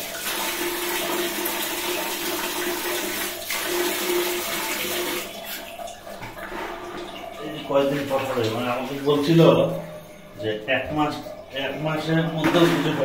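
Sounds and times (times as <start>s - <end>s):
water pouring into bucket: 0.0s - 10.0s.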